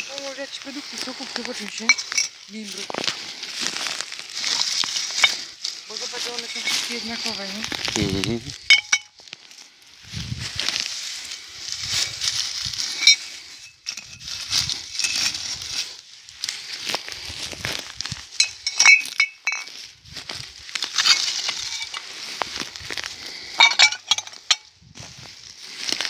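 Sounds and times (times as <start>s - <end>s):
dry moss and twigs rustling: 0.0s - 26.0s
glass bottles clinking: 1.7s - 2.6s, 4.4s - 7.4s, 8.5s - 9.2s, 13.0s - 14.2s, 14.9s - 15.3s, 18.3s - 19.8s, 20.9s - 22.1s, 23.5s - 24.7s.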